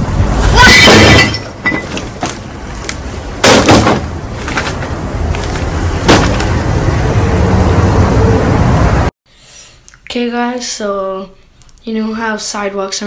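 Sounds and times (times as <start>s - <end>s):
garbage bags thumping on deck: 3.4s - 6.5s.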